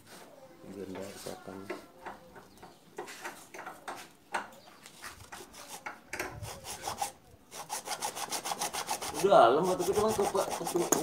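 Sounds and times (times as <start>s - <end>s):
hacksaw cutting plastic: 5.2s - 11.0s.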